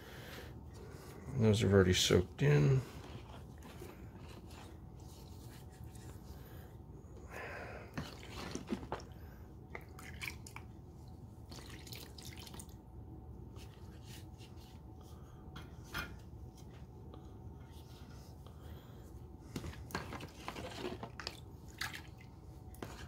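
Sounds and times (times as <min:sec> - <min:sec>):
faint steady hum: 0:00.0 - 0:23.0
liquid splashing in plastic tub: 0:07.9 - 0:10.7, 0:11.4 - 0:12.8, 0:19.9 - 0:23.0.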